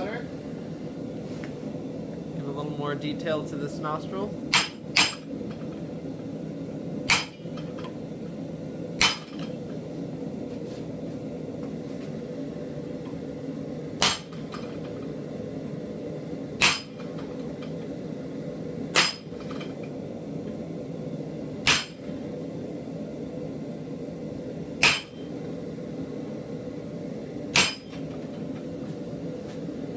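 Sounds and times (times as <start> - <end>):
steady low hum: 0.0 - 29.9
hammer striking metal chisel: 7.1 - 7.4, 9.0 - 9.5, 14.0 - 14.5, 16.6 - 17.1, 18.9 - 19.4, 21.6 - 22.0, 24.8 - 25.3, 27.5 - 28.0.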